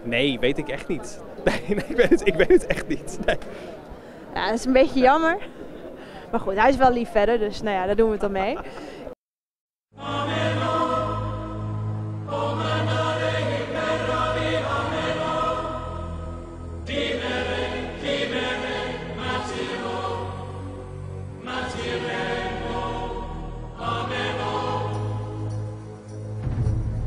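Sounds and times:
choral chant-like notes: 9.9 - 26.3.

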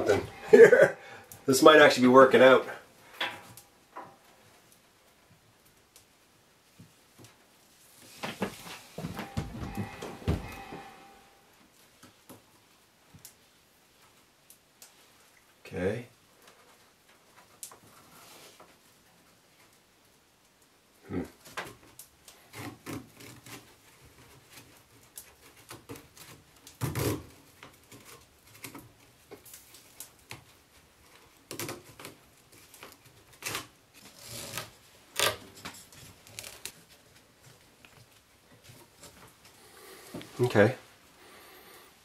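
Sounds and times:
rope rubbing and rustling: 7.6 - 11.4, 16.4 - 19.6, 22.3 - 42.0.

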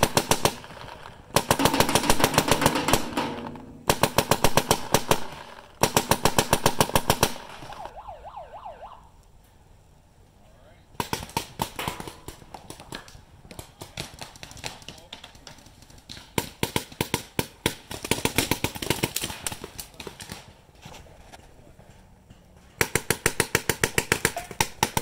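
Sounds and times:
paintball markers firing rapidly: 0.0 - 7.9, 11.0 - 20.6, 22.8 - 25.0.

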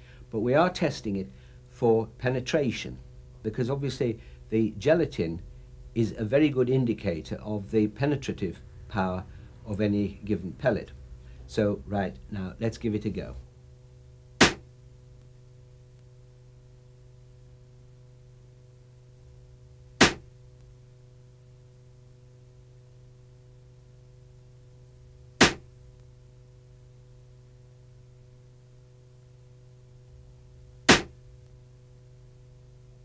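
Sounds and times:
air rifle shots: 14.4 - 14.7, 20.0 - 20.3, 25.4 - 25.7, 30.9 - 31.2.

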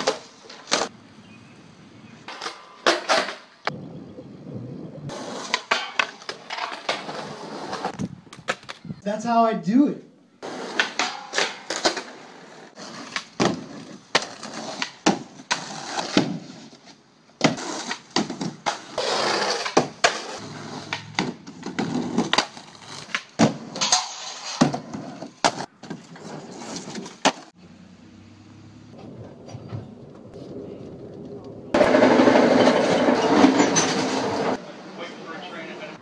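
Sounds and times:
skateboard wheels rolling on concrete: 0.0 - 9.0, 10.4 - 27.6, 28.6 - 36.0
skateboard knocking on obstacles: 17.4 - 23.8.

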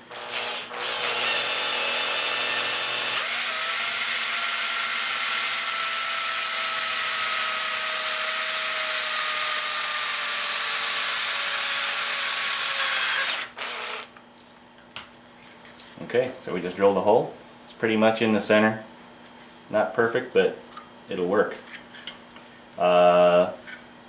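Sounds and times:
cordless drill drilling metal: 0.1 - 14.1.

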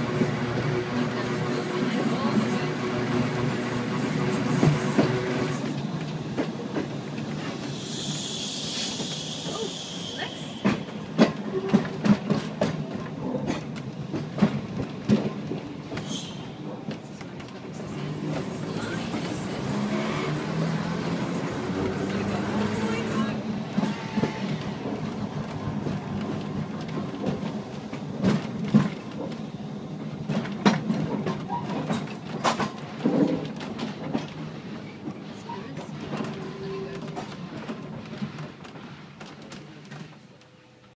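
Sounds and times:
tram running on track: 0.0 - 41.0
hiss: 7.5 - 10.8
wheels clacking over rail joints: 10.5 - 40.6.

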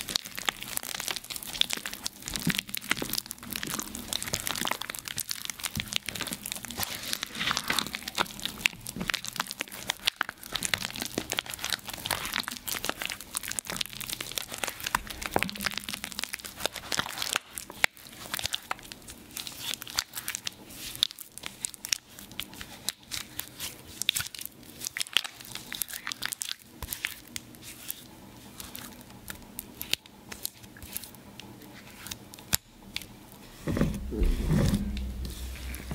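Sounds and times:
low rumble: 33.6 - 35.9.

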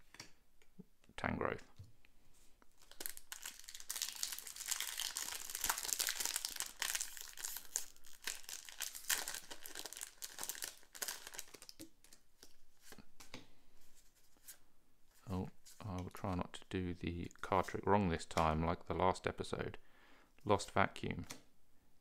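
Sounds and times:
foil pack tearing and crinkling: 2.8 - 11.7.

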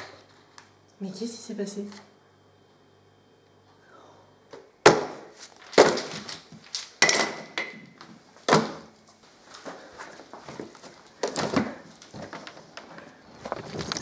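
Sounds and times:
wooden tokens clattering: 5.4 - 7.9.

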